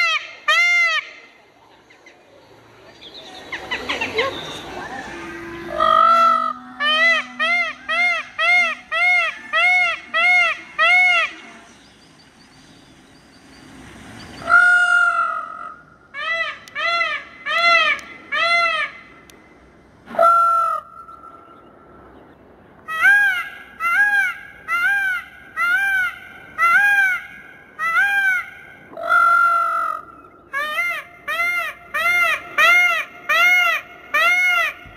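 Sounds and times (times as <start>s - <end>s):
peacock calling: 3.2s - 11.6s, 14.4s - 19.2s, 22.8s - 34.9s.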